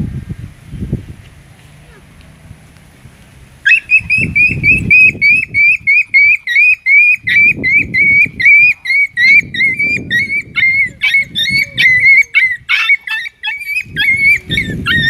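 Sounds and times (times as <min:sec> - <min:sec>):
small dog yelping: 0:03.6 - 0:15.0.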